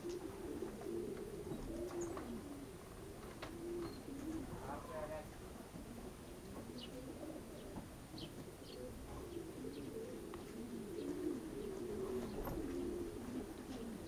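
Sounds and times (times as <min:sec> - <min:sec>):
pigeons cooing: 0:00.0 - 0:14.0
small birds chirping: 0:01.3 - 0:02.8, 0:06.1 - 0:14.0.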